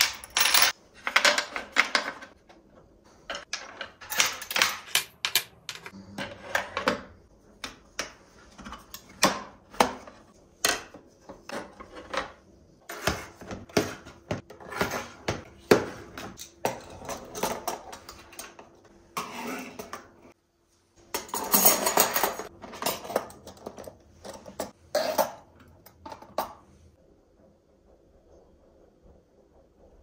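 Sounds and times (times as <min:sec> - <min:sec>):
metal cutlery clattering: 0:21.2 - 0:26.4.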